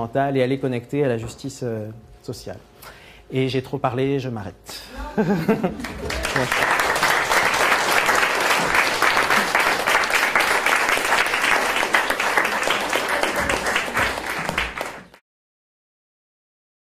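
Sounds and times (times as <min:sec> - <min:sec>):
audience applauding: 0:05.6 - 0:15.2.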